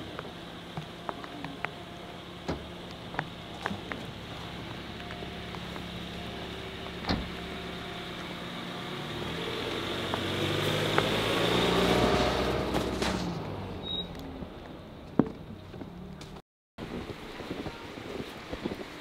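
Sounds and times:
tyres on packed snow: 0.0 - 14.2
van engine driving past: 0.0 - 14.5.

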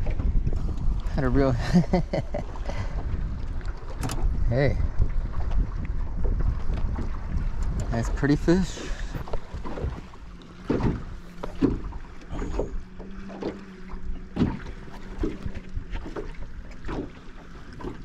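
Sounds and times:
knocks and thumps in a boat: 0.0 - 18.0.

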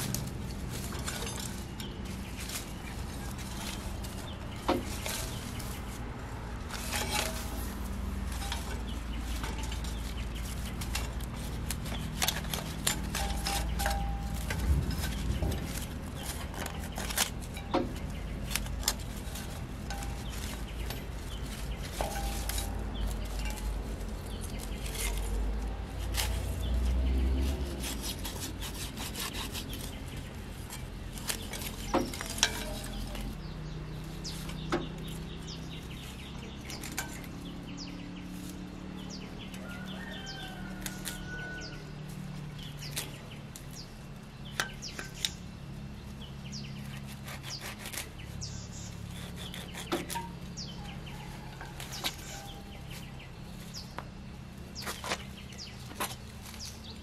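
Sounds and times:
metal clicking on tiller blades: 0.0 - 39.6
knife cutting dry straw: 0.0 - 57.0.

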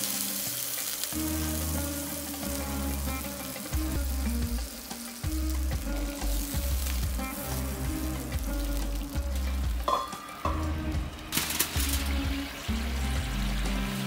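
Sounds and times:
background music: 0.0 - 14.0
meat sizzling in hot oil: 0.0 - 14.0.

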